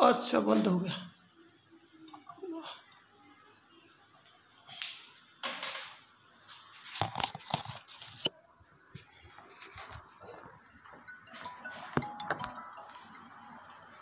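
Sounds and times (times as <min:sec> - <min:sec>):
knocks and clicks: 0:10.6 - 0:13.2.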